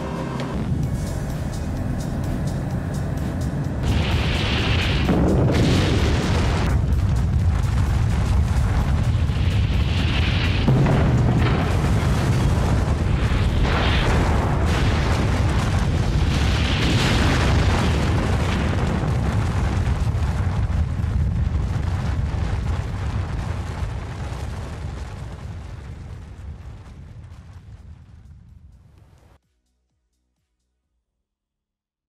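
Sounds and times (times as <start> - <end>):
deep rumble of bomb blast: 3.6 - 28.7.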